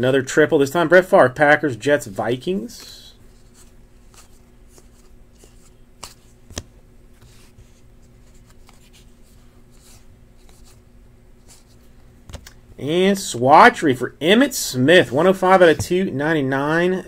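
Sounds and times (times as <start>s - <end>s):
faint steady hum: 0.0s - 17.0s
trading cards flipped by hand: 3.3s - 10.8s, 11.4s - 12.6s
card snapping: 6.0s - 6.7s.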